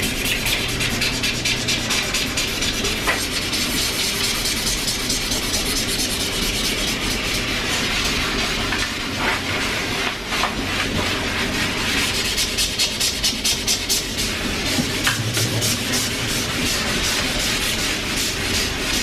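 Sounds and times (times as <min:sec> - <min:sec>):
hand scrubbing a wall: 0:00.0 - 0:19.0.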